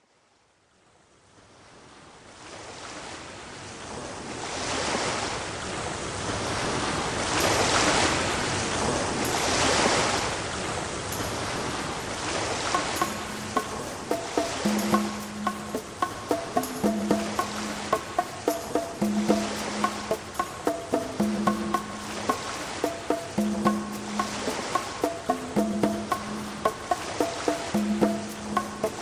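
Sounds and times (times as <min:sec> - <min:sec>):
surf-like rushing noise: 0:02.5 - 0:29.0
soft music notes: 0:11.1 - 0:29.0.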